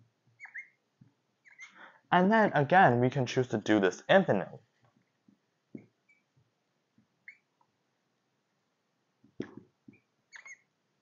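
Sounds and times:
marker squeaking on whiteboard: 0.3 - 0.8, 1.4 - 1.8, 5.8 - 6.4, 7.2 - 7.5, 9.4 - 10.7.

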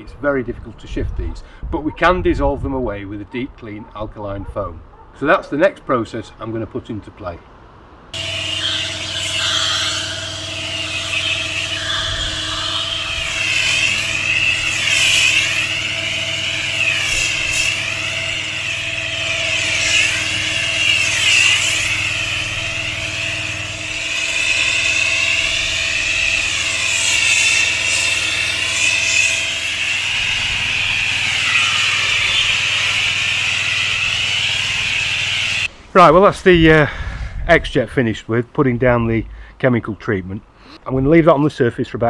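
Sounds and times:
spray hissing: 8.2 - 35.7
pressure washer hum: 8.2 - 35.8.

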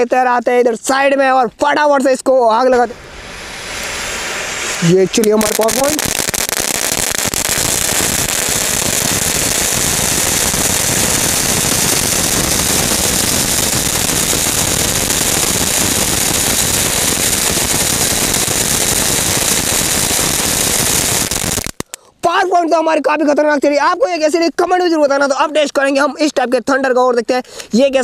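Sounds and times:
fountain firework hissing and crackling: 2.7 - 21.9.

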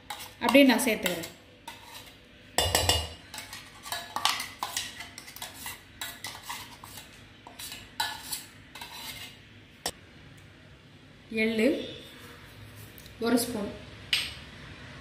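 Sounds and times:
spoon scraping metal vessel: 0.0 - 9.4.

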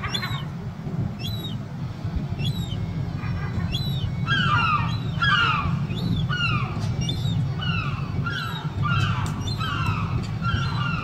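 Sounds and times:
juvenile gull begging calls: 0.0 - 0.5, 2.4 - 11.0.

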